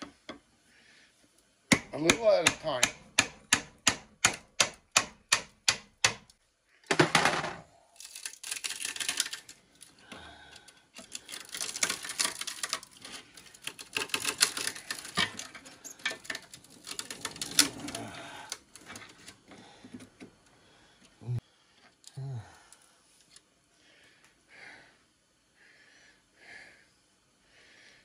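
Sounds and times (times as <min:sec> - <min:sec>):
scraping and crackling: 0:07.0 - 0:10.0, 0:10.9 - 0:19.4.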